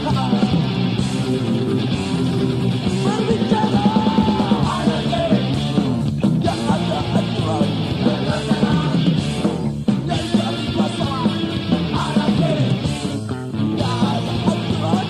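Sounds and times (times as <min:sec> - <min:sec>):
person shouting and singing: 0:00.0 - 0:00.9, 0:02.9 - 0:05.6, 0:06.4 - 0:12.9, 0:13.7 - 0:15.0
punk rock band with guitar: 0:00.0 - 0:15.0.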